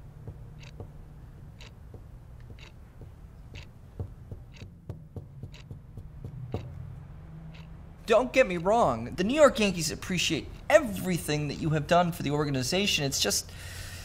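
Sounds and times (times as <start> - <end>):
clock ticking: 0.0 - 7.8
low steady hum: 0.0 - 11.9.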